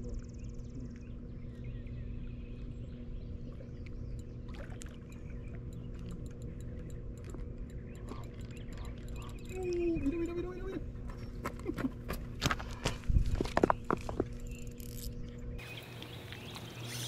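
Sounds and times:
rumble of moving air and water: 0:00.0 - 0:11.4
faint steady hum: 0:00.0 - 0:17.0
small high ticks and chirps: 0:03.8 - 0:10.8.

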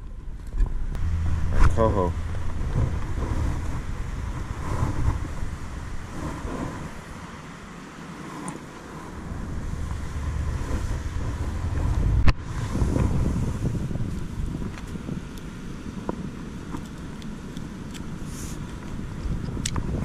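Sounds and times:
wind buffeting microphone: 0:00.0 - 0:20.0
microphone handling noise: 0:00.4 - 0:07.0, 0:09.1 - 0:15.0.

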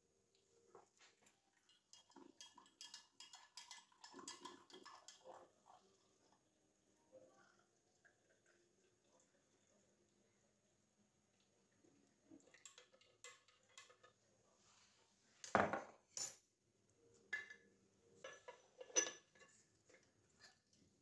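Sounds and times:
ceramic crockery clinking: 0:17.3 - 0:20.1.

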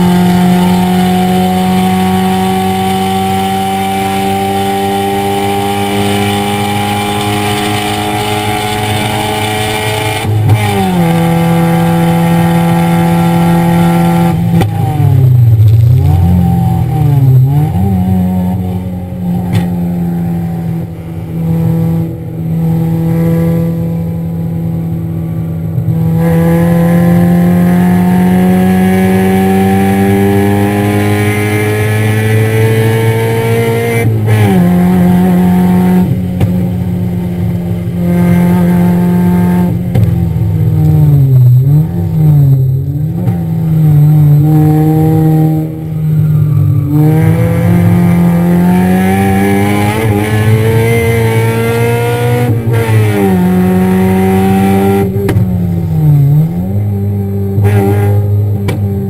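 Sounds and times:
car engine revving hard: 0:00.0 - 0:46.0, 0:46.6 - 0:59.0.

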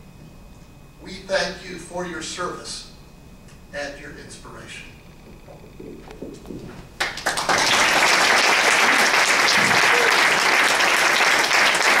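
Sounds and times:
audience applauding: 0:07.0 - 0:12.0.

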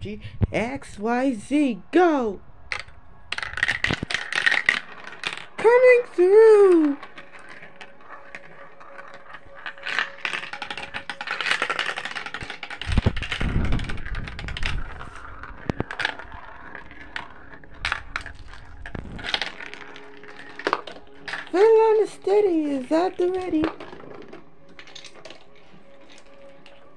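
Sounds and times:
low rumble: 0:00.0 - 0:05.6, 0:12.9 - 0:20.5
marbles clicking on plastic tubes: 0:02.7 - 0:26.9
marbles rolling through plastic run: 0:02.7 - 0:26.9.

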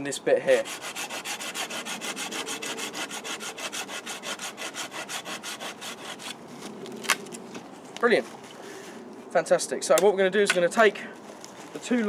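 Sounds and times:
hand saw cutting a branch: 0:00.5 - 0:06.4.

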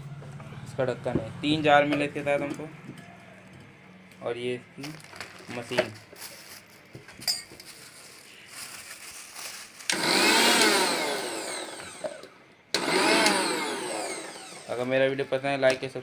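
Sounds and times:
mixer grinder motor whine: 0:09.9 - 0:14.9.

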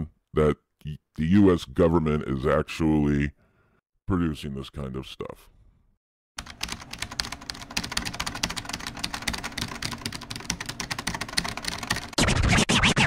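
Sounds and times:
rapid dense clicking: 0:06.4 - 0:12.2.

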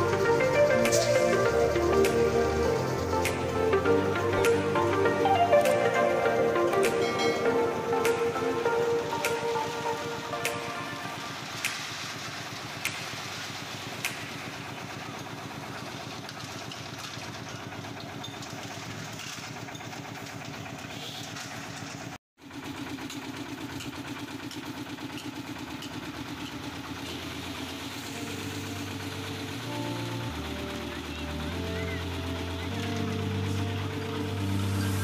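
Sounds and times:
concrete mixer chugging: 0:10.7 - 0:35.0.

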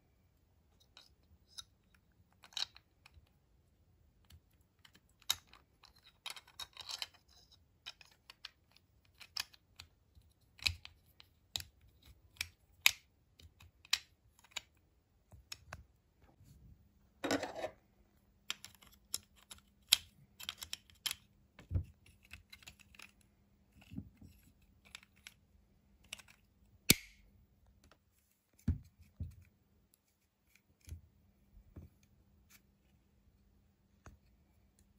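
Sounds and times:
plastic toy parts clicking: 0:04.2 - 0:14.8, 0:18.5 - 0:21.3.

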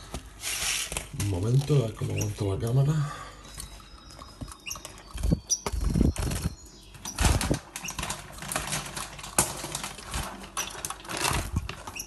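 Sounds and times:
finches fluttering wings: 0:03.6 - 0:12.0.

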